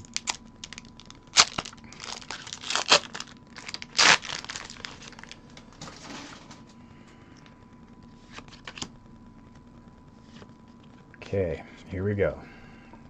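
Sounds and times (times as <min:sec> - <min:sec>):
foil wrapper crinkling and tearing: 0:00.0 - 0:06.4, 0:08.2 - 0:08.9.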